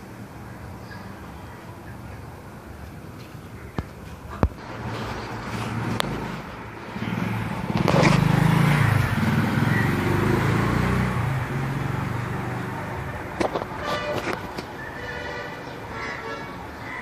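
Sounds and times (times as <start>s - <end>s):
vehicle engine passing by: 4.6s - 15.0s.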